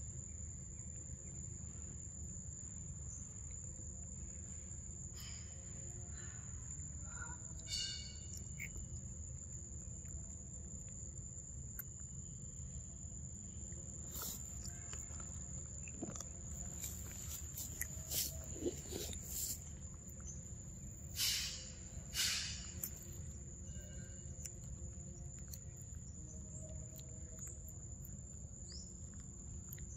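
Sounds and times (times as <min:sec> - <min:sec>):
high thin insect tone: 0:00.0 - 0:29.9
monkey chewing: 0:14.1 - 0:20.2.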